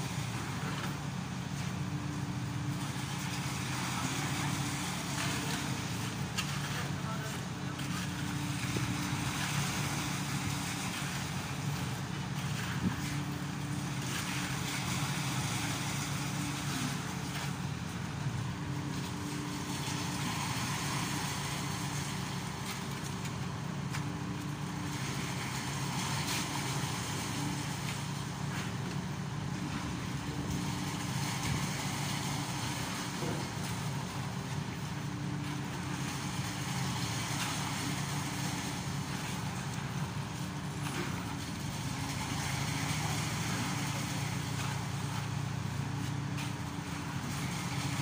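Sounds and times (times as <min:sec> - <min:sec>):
diesel engine running: 0:00.0 - 0:48.0.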